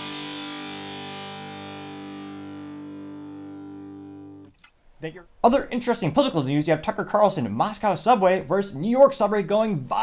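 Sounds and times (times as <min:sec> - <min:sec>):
distorted electric guitar chord: 0:00.0 - 0:04.5.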